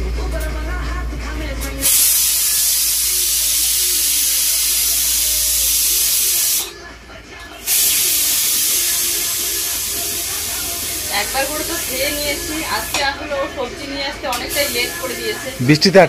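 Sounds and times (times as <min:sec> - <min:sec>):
pressure cooker steam hissing: 0:01.8 - 0:06.8, 0:07.6 - 0:13.7, 0:14.3 - 0:16.0.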